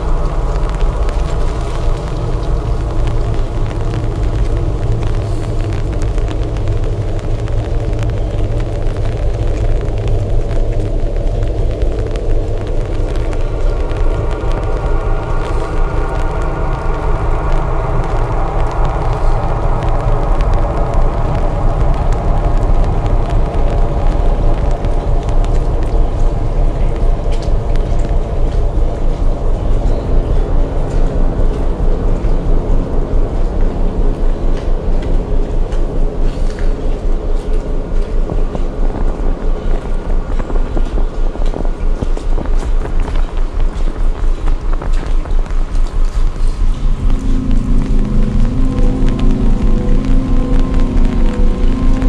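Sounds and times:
ambient drone music: 0:00.0 - 0:52.0
regular pulse: 0:46.2 - 0:52.0.

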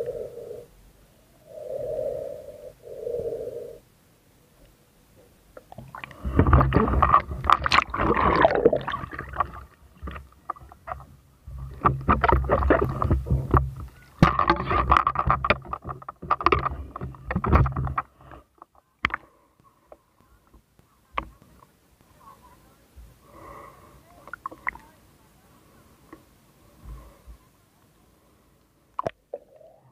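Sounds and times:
water sloshing and splashing: 0:05.6 - 0:18.3.

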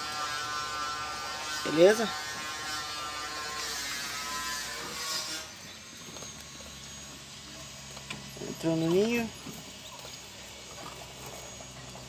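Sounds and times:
steady tonal buzz: 0:00.0 - 0:12.0.

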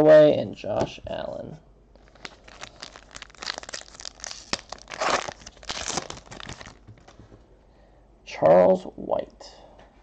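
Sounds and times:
foil wrapper tearing and crinkling: 0:02.0 - 0:07.2.

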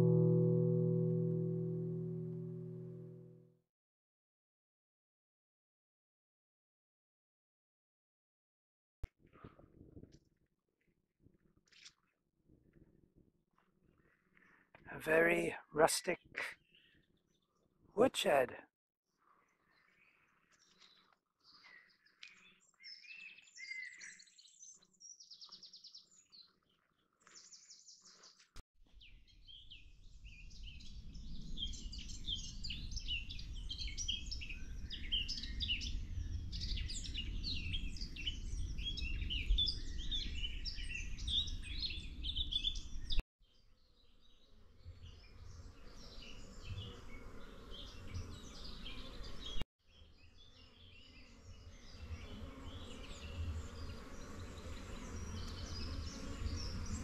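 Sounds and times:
songbirds singing: 0:19.5 - 0:28.3, 0:29.0 - 0:57.0.

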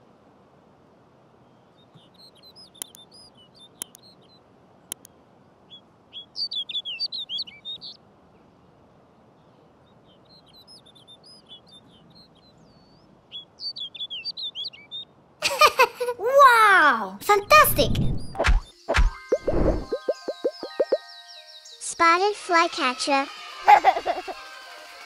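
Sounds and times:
bird song phrases: 0:01.4 - 0:08.6, 0:09.2 - 0:15.2, 0:19.6 - 0:22.8
sharp clicks: 0:04.9 - 0:05.1
falling-pitched sound effect: 0:17.4 - 0:20.9
bird twittering: 0:17.8 - 0:21.4.

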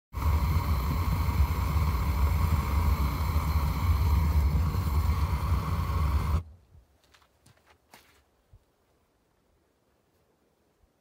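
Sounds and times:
gas burner roaring: 0:00.1 - 0:06.5.

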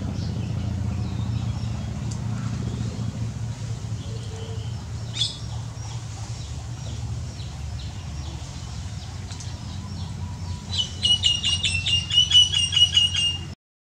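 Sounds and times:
low rumble: 0:00.0 - 0:12.2
bird chirping and chattering: 0:03.8 - 0:13.6.

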